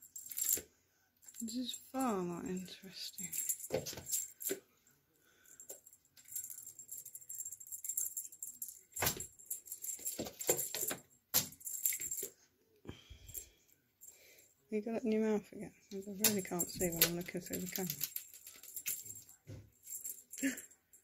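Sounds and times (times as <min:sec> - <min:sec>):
cat playing with rattling toy: 0:03.0 - 0:04.6, 0:05.4 - 0:12.3, 0:16.0 - 0:21.0.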